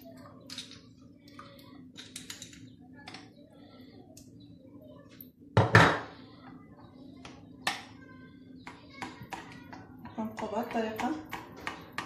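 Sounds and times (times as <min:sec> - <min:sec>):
utensils clattering against a pot: 0:01.9 - 0:03.3.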